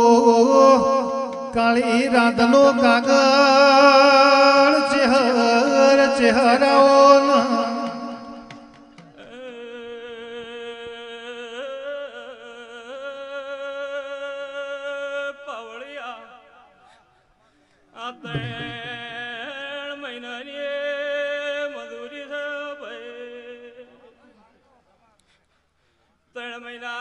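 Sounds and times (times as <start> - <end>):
man singing into a microphone: 0.0 - 16.7, 17.9 - 25.2, 26.3 - 27.0.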